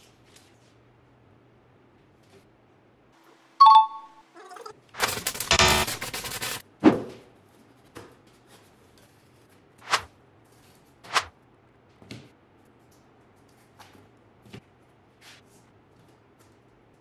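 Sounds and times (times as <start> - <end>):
dense rattling scrape: 5.0 - 6.6.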